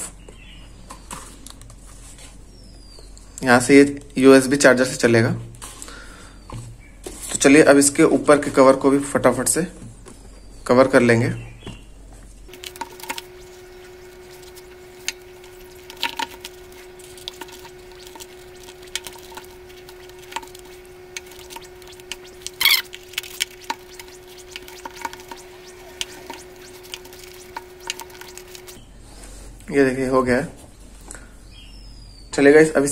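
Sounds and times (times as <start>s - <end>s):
faint steady hum: 9.8s - 32.9s
paper crinkle: 12.5s - 28.8s.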